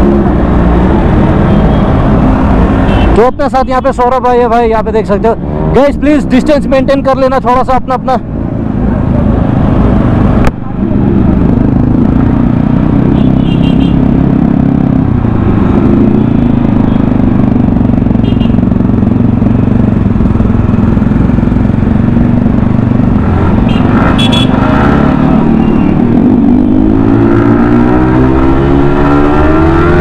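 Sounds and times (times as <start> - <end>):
motorcycle engine running: 8.6 - 27.0.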